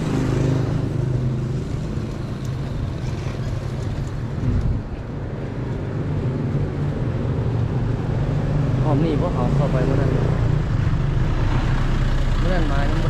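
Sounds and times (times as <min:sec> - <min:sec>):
vehicle engine rumble: 0:00.0 - 0:13.0
wind noise: 0:00.1 - 0:08.5.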